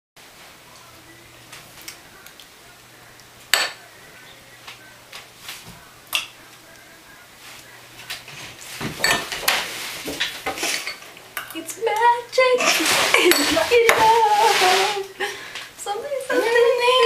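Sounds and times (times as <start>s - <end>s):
knocks and shuffling at table: 7.4s - 11.2s.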